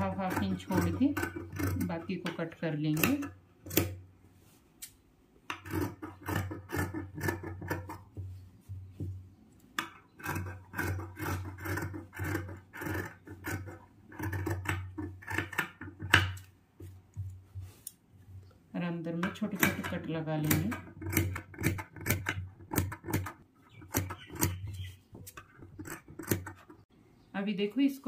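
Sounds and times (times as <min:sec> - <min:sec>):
scissors snipping fabric: 0:00.0 - 0:04.0, 0:19.2 - 0:24.6.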